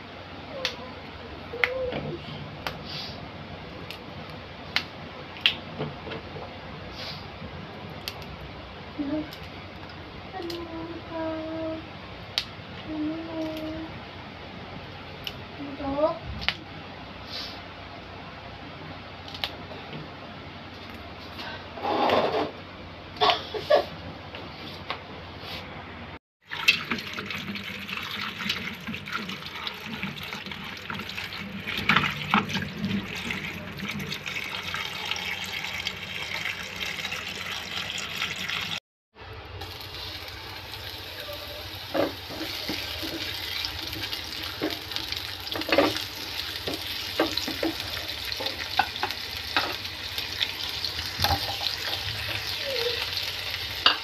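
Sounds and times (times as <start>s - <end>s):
tap water running: 26.4s - 38.8s, 39.6s - 54.0s
garlic sizzling in oil: 39.6s - 54.0s.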